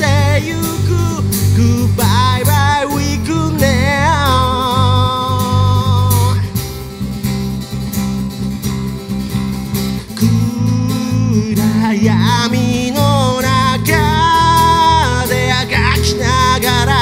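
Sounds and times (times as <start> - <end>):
person singing: 0.0 - 6.6, 10.2 - 17.0
cajon beat: 0.0 - 17.0
electric bass: 0.0 - 17.0
strummed acoustic guitars: 0.0 - 17.0.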